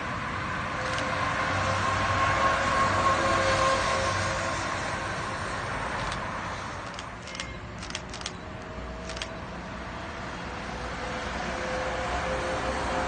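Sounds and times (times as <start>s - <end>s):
electric trolleybus approaching: 0.0s - 13.0s
street traffic noise: 0.0s - 13.0s
sharp clicks: 6.0s - 6.2s, 6.8s - 9.4s.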